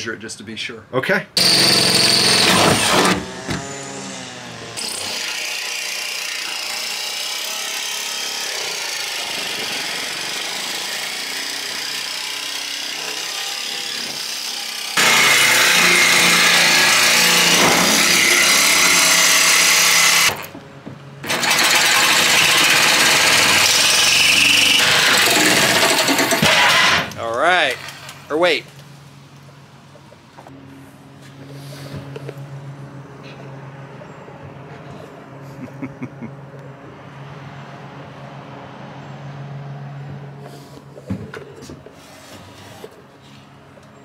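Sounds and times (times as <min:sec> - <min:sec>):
power saw cutting sheet metal: 0:01.4 - 0:20.5, 0:21.2 - 0:28.3.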